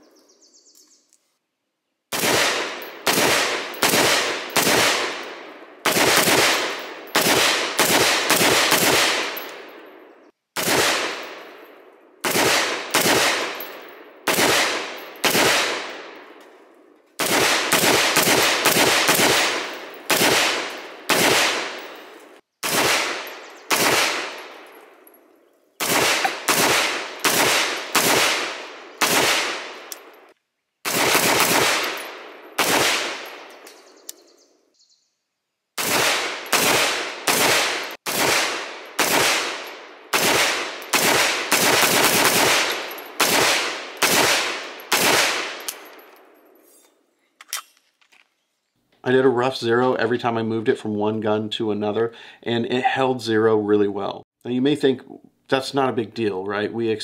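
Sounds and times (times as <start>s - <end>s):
gunshots: 2.1s - 11.6s, 12.2s - 16.4s, 17.2s - 24.8s, 25.8s - 33.6s, 35.8s - 46.1s.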